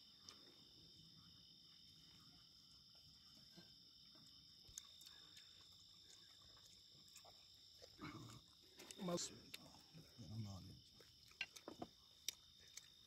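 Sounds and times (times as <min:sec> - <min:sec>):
crickets chirring: 0:00.0 - 0:13.0.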